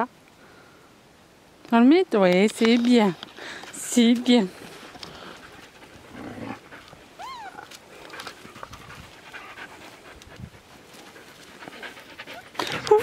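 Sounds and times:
dog panting: 3.4 - 7.2, 7.8 - 13.0
puppy whining: 7.2 - 7.8.

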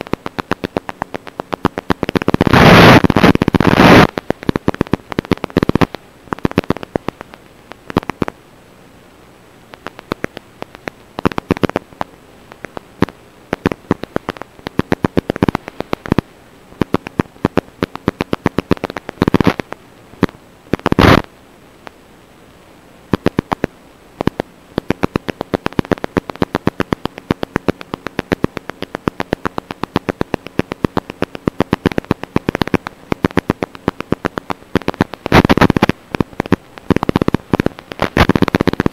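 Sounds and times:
crackling radio static: 0.0 - 38.9
bursts of hiss: 2.2 - 6.8.

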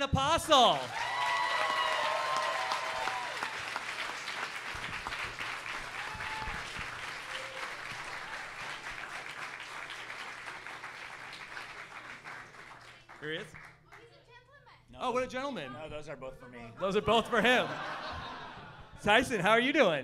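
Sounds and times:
audience applauding: 0.5 - 14.1.

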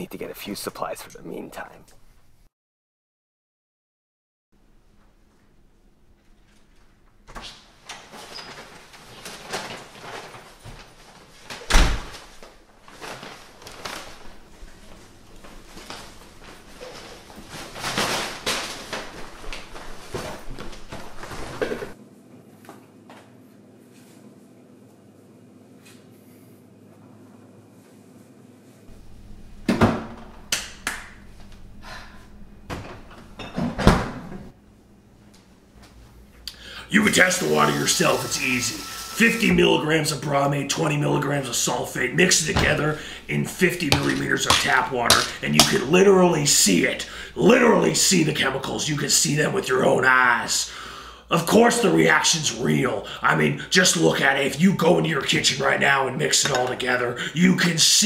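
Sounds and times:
paper bags rustling: 8.0 - 22.0
door slamming shut: 11.7 - 12.2, 33.6 - 34.5
refrigerator door opening: 32.7 - 34.5
footsteps: 42.2 - 45.9.

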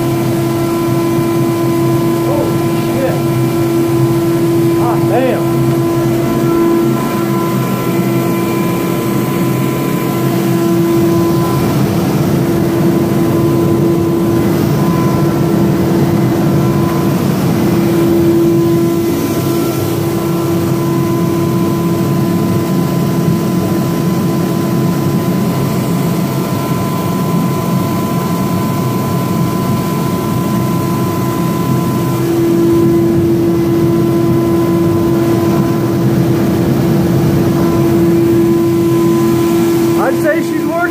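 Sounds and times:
humming tone: 0.0 - 22.1, 30.9 - 40.0
gas burner roaring: 0.0 - 40.9.

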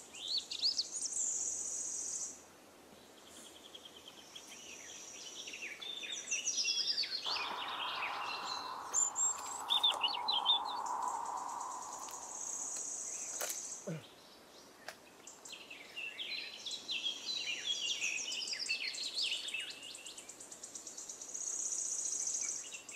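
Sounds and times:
songbirds chirping and singing: 3.8 - 13.6
steady hiss: 7.3 - 14.0.

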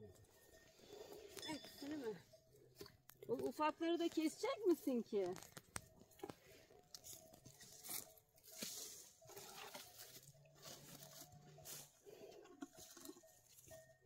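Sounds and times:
footsteps crunching dry stalks: 3.4 - 13.7.

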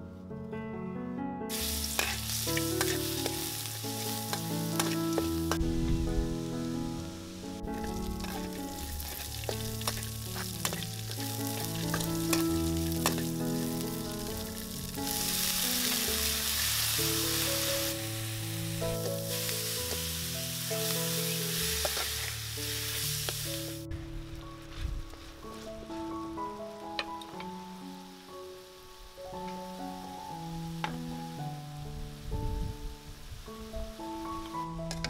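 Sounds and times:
soft background music: 0.0 - 35.0
metal spatula scraping a wok: 1.5 - 3.4, 8.1 - 13.3, 20.9 - 23.4
stir-frying sizzle in a wok: 1.5 - 23.8.

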